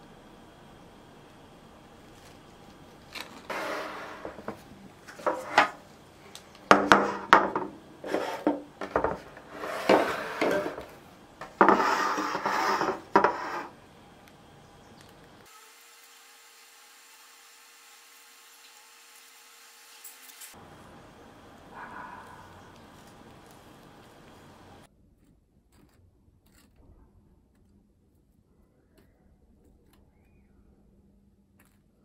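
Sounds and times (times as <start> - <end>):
spatula scraping piping bag: 2.4 - 5.8, 8.0 - 13.8
baking trays knocking: 3.5 - 5.8, 6.7 - 13.7.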